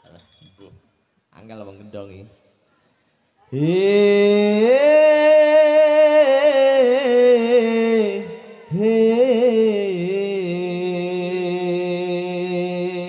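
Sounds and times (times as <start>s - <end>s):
man singing into a microphone: 3.5s - 13.0s.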